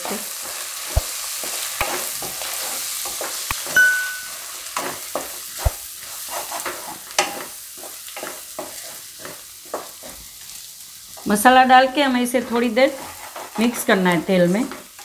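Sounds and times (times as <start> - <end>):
vegetables sizzling in hot oil: 0.0 - 15.0
short high ding: 3.7 - 4.4
spatula scraping pan: 4.8 - 10.4, 12.0 - 15.0.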